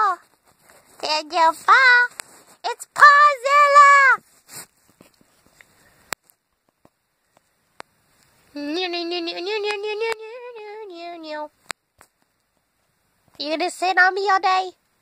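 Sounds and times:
faint clicks: 4.8s - 8.4s
woman humming a tune: 8.6s - 11.4s.

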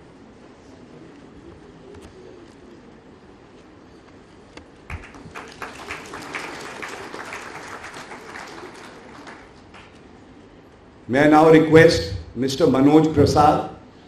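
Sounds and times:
audience applauding: 4.9s - 10.2s.

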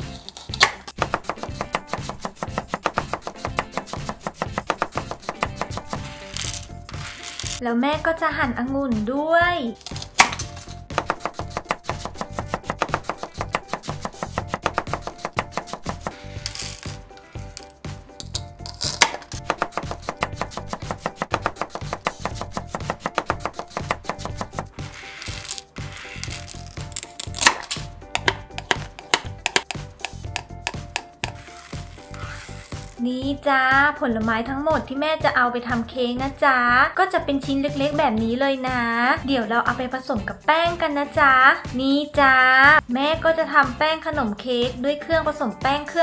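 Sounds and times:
toy knife tapping on plastic board: 0.6s - 6.1s, 10.0s - 16.1s, 18.2s - 24.6s, 26.9s - 31.4s.

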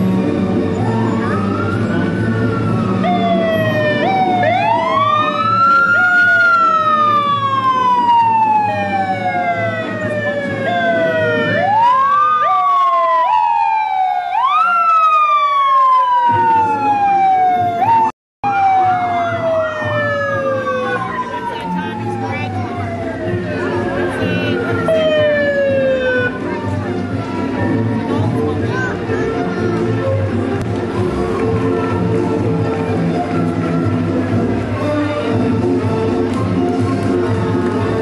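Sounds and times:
low vehicle rumble: 0.0s - 34.8s
police sirens wailing: 0.0s - 38.0s.

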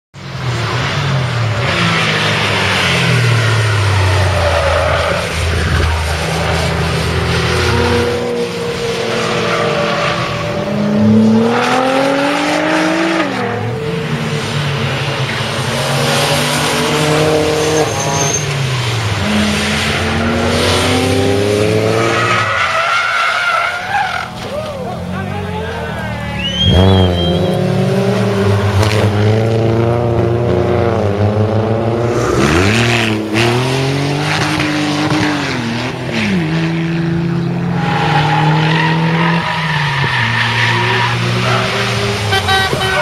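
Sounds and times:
race car engines revving: 0.2s - 43.0s
tyres squealing: 25.7s - 27.6s.

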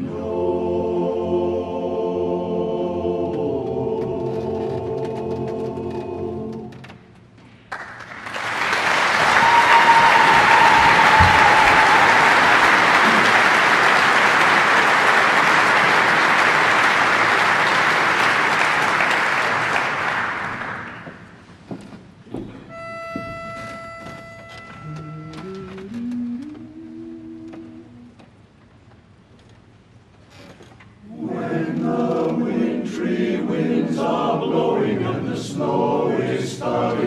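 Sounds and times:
audience applauding: 7.7s - 21.4s
held whistle: 22.7s - 28.0s
pitch pipe note: 22.7s - 28.1s.

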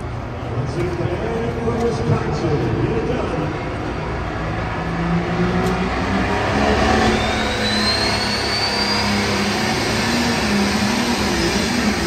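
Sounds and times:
tractor engine under full load: 0.0s - 8.4s
high whine rising in pitch: 3.8s - 12.0s.

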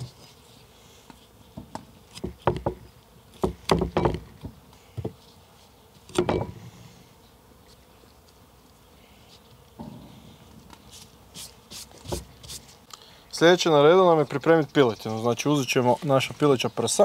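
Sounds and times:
insect buzzing: 0.0s - 17.0s.

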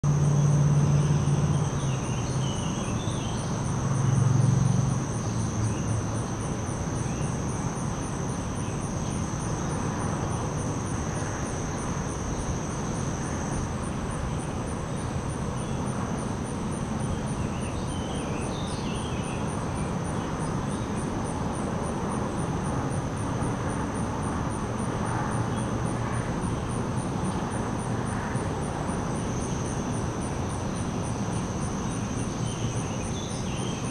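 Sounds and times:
crickets trilling: 0.0s - 33.9s
low engine-like hum: 0.0s - 33.9s
pulsing insect call: 24.8s - 33.9s.

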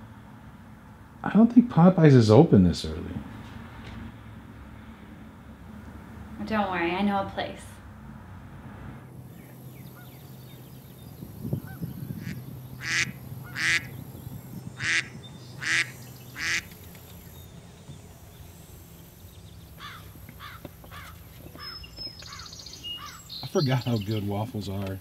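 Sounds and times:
faint low hum: 0.0s - 25.0s
waterfowl honking: 9.3s - 10.6s, 11.5s - 14.1s, 14.8s - 16.8s, 19.8s - 23.3s
soft quick bird calls: 19.8s - 24.1s.

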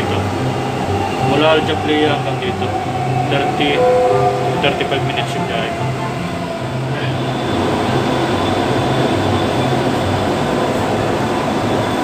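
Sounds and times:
low hum: 3.8s - 7.4s.

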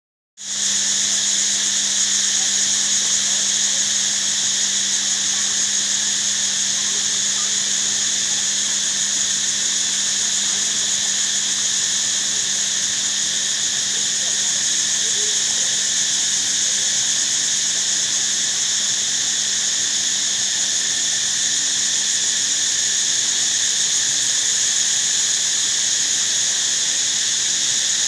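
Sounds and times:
insects buzzing: 0.4s - 28.0s.

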